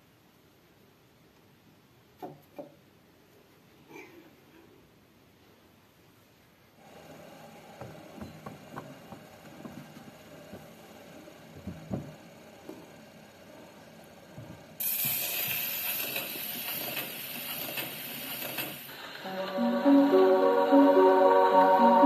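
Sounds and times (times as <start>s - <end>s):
record surface hiss and crackle: 0.0s - 6.8s, 8.0s - 22.0s.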